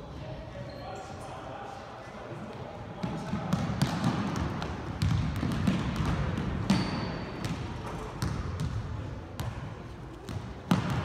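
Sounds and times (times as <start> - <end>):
shoe squeak: 0.6 - 1.2, 6.7 - 7.4
basketballs bouncing on hardwood: 3.0 - 9.6, 10.2 - 11.0.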